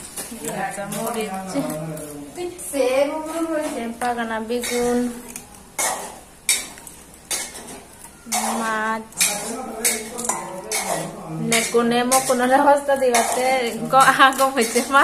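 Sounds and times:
metal bowls and plates clattering: 0:03.2 - 0:15.0.

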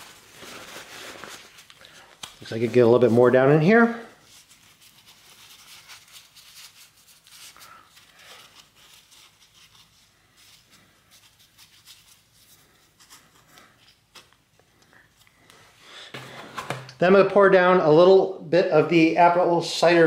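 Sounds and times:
paper towel rustling: 0:00.0 - 0:14.5.

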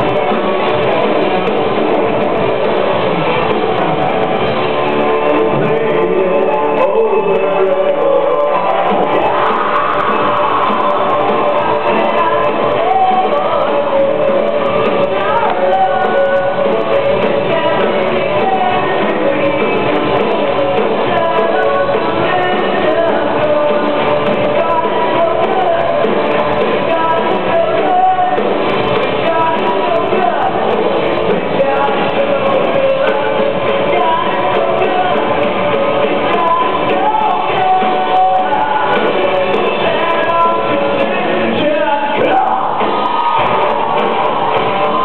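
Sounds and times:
lead singer singing: 0:00.0 - 0:45.0
live rock band playing: 0:00.0 - 0:45.0.

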